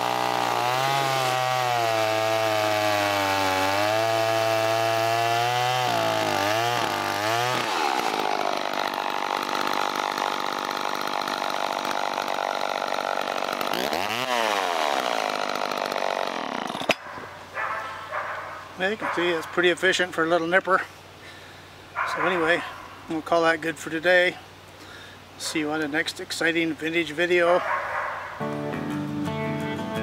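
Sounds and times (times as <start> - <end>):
chainsaw cutting log: 0.0 - 17.3.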